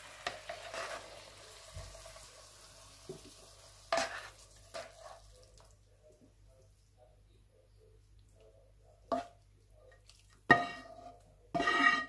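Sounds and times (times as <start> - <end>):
utensil scraping a frying pan: 0.0 - 1.4, 3.9 - 5.2, 10.5 - 12.0
faint sizzle: 0.0 - 8.4.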